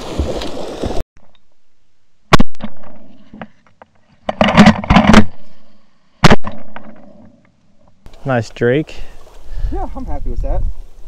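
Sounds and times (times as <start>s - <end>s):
shotgun blasts: 2.3s - 3.0s, 6.2s - 6.8s.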